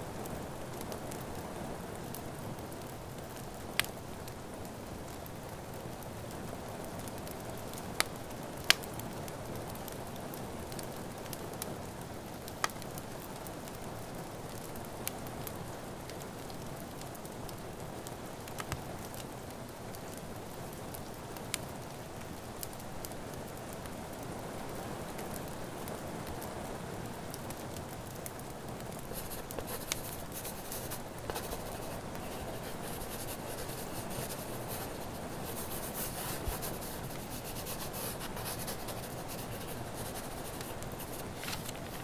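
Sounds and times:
steady rain: 0.0s - 42.0s
wood fire crackling: 0.0s - 42.0s
pen scratching on paper: 29.2s - 42.0s.

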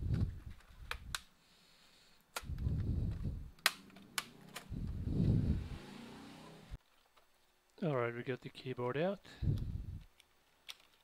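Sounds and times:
muffled handling sounds: 0.0s - 1.3s, 2.2s - 5.4s
sharp plastic clicks and snaps: 0.1s - 1.3s, 2.3s - 4.7s, 9.5s - 11.0s.

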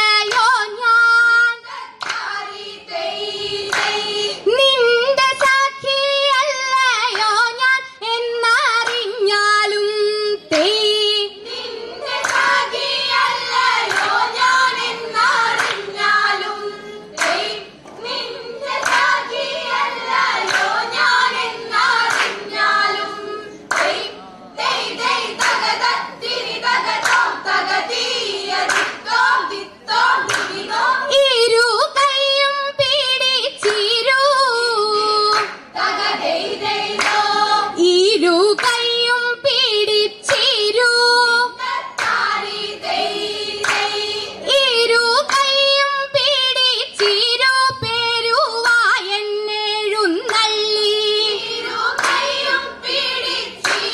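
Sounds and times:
girls singing in chorus: 0.0s - 53.9s
hands clapping in rhythm: 0.2s - 0.8s, 1.6s - 4.4s, 5.2s - 5.9s, 6.7s - 7.6s, 8.6s - 9.2s, 10.5s - 10.8s, 11.4s - 31.0s, 33.4s - 34.5s, 35.2s - 37.8s, 38.5s - 39.2s, 40.2s - 40.8s, 41.6s - 44.6s, 45.2s - 48.0s, 50.1s - 53.9s.

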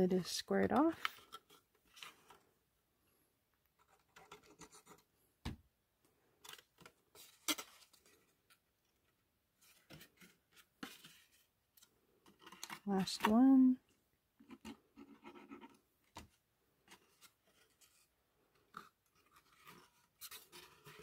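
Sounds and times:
cardstock rustling and rubbing: 14.4s - 21.0s.

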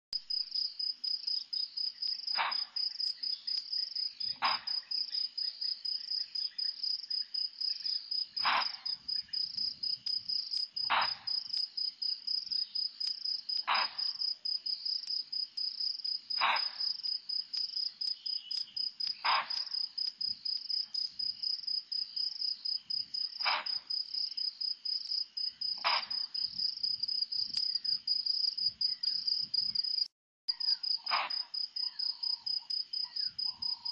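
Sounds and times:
insect trill: 0.3s - 33.9s
antelope alarm barks: 2.3s - 3.1s, 8.4s - 9.1s.

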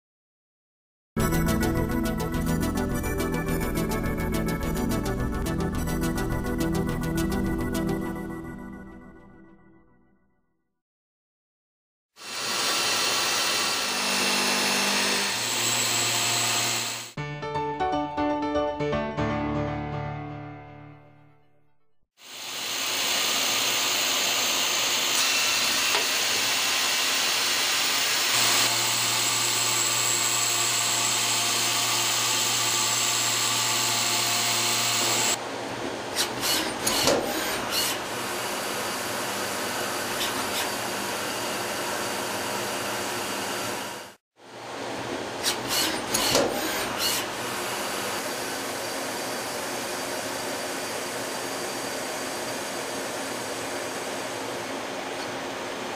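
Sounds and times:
lathe machining metal: 12.2s - 17.1s, 22.3s - 35.4s.

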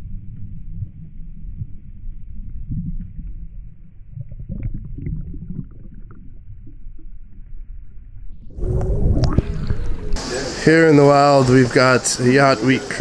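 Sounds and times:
underwater bubbling: 0.0s - 11.0s
muffled underwater rumbling wash: 0.0s - 12.2s.

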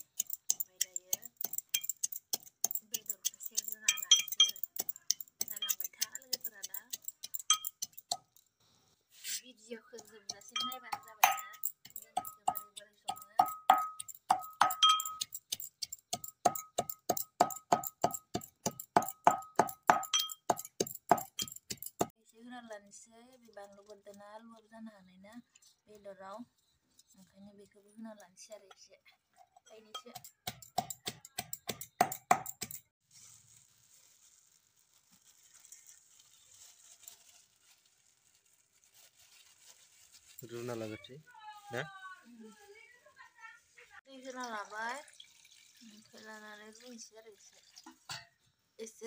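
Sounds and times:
metal pestle pounding in mortar: 10.0s - 22.1s, 30.0s - 32.8s.

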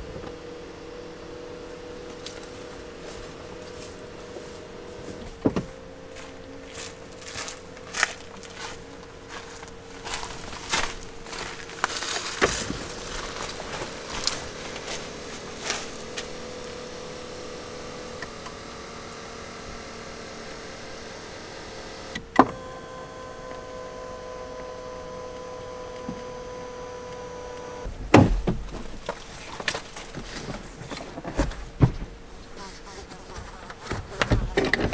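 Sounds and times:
small electric motor whining: 0.0s - 27.9s
higher motor whine: 0.0s - 32.4s.

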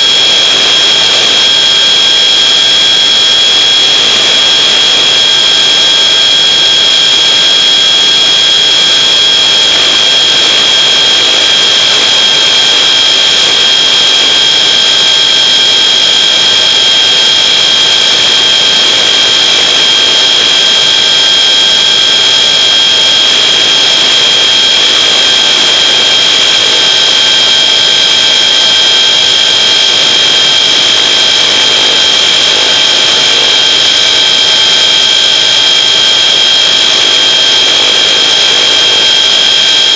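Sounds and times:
electric motor whining: 0.0s - 39.9s
wind noise: 0.0s - 39.9s.

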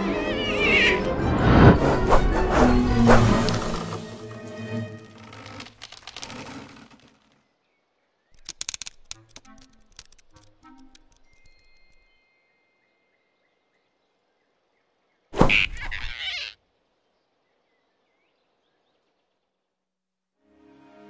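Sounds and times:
cartoon whoosh: 0.4s - 4.0s.

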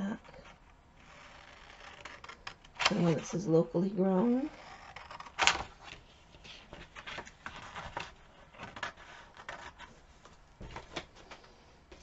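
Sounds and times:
paper pages rustling: 4.7s - 12.0s.

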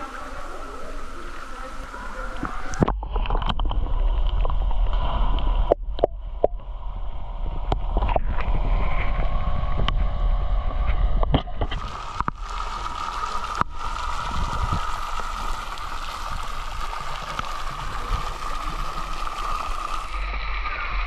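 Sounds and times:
water falling and splashing: 0.0s - 6.0s, 11.6s - 21.0s
low rumble: 0.0s - 21.0s
muffled underwater gurgling: 0.0s - 21.0s.

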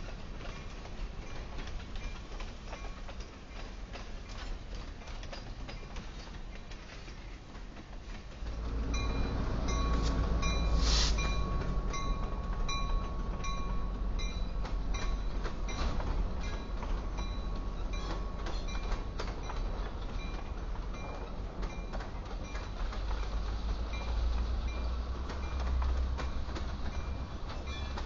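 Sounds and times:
diesel locomotive engine rumble: 0.0s - 28.0s
train wheels clicking on rails: 0.0s - 28.0s
short hiss: 10.0s - 11.4s.

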